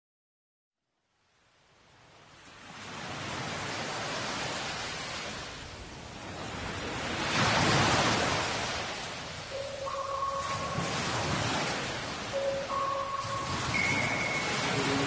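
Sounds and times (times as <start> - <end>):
sea water splashing: 6.6 - 15.0.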